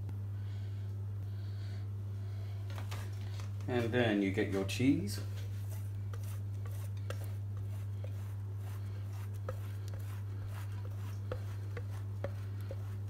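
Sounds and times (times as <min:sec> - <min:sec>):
steady low hum: 0:00.0 - 0:13.0
cheese grater rasping: 0:05.6 - 0:13.0.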